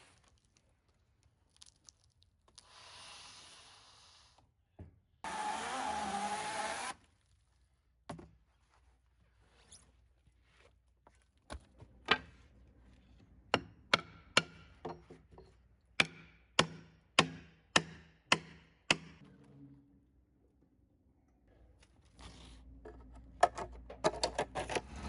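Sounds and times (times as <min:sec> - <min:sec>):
hand tool striking log: 0:13.5 - 0:15.2, 0:16.0 - 0:19.2.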